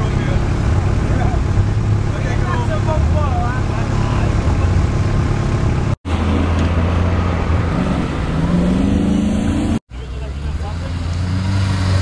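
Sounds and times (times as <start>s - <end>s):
off-road engines running at low revs: 0.0s - 12.0s.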